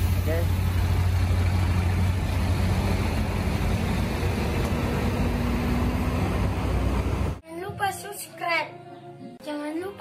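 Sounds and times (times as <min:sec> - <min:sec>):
diesel machinery droning: 0:00.0 - 0:07.4.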